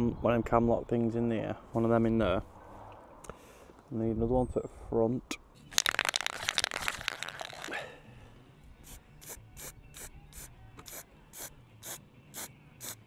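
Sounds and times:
small metal parts clattering: 0:05.7 - 0:07.7
spray can shaken with ball rattling: 0:05.7 - 0:07.8.

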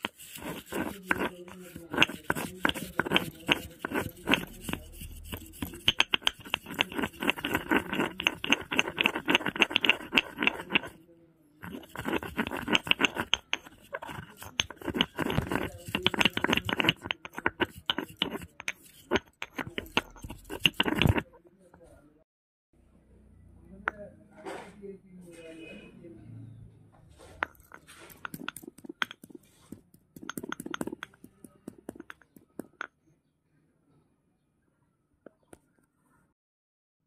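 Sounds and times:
stone pestle grinding in mortar: 0:00.0 - 0:11.0, 0:11.6 - 0:21.4, 0:27.4 - 0:32.9.

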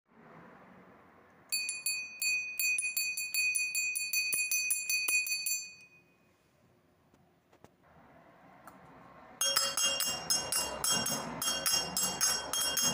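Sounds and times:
hand bell ringing: 0:01.5 - 0:06.2, 0:09.4 - 0:12.9.

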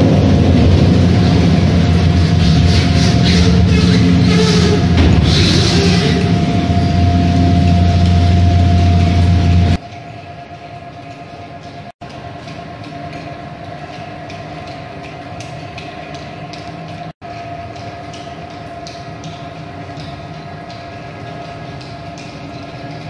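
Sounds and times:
loud low hum: 0:00.0 - 0:09.8
conveyor machinery hum and whine: 0:00.0 - 0:23.0.

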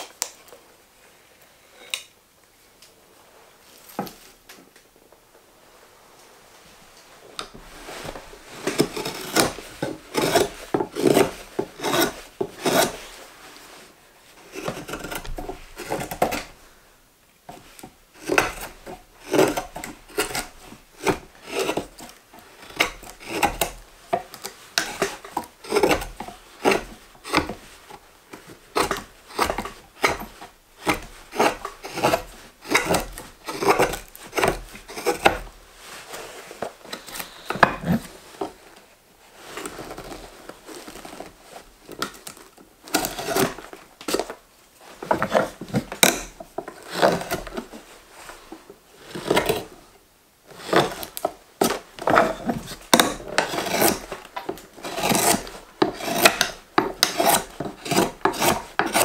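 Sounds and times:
knife slicing wood: 0:08.6 - 0:13.0, 0:14.5 - 0:16.6, 0:24.8 - 0:27.6, 0:28.8 - 0:35.4, 0:53.0 - 0:59.0.

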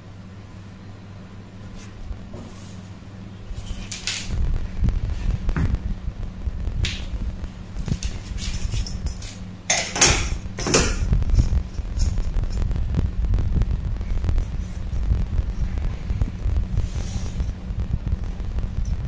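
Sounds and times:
scratchy handling noises: 0:07.7 - 0:09.5.

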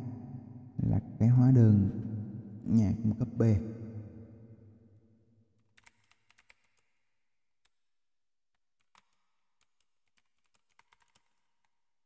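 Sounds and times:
typing on computer keyboard: 0:05.6 - 0:06.9, 0:08.6 - 0:11.8.

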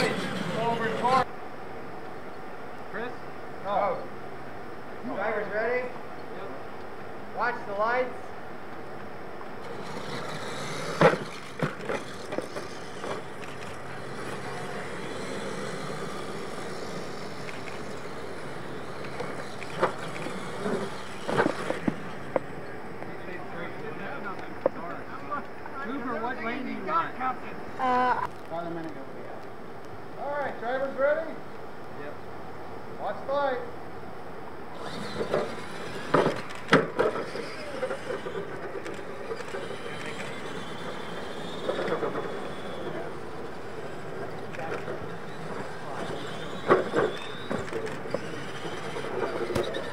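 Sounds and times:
radio-controlled trucks driving: 0:00.0 - 0:01.3, 0:09.5 - 0:29.0, 0:34.7 - 0:49.9.

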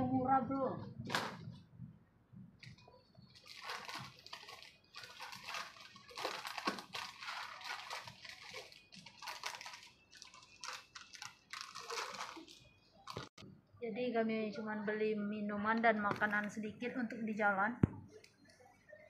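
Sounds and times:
plastic snack packets crinkling: 0:02.6 - 0:13.4.

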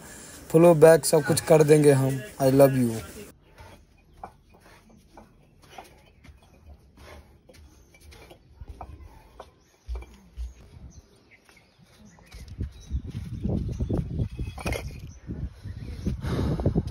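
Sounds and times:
dull low thumps: 0:06.2 - 0:11.0, 0:12.3 - 0:16.9.

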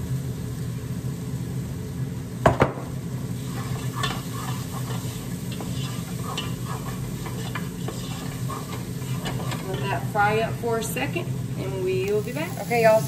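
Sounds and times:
onions sizzling in oil: 0:00.0 - 0:13.0
steady low hum: 0:00.0 - 0:13.0
wooden spoon scraping pot: 0:03.5 - 0:10.2.

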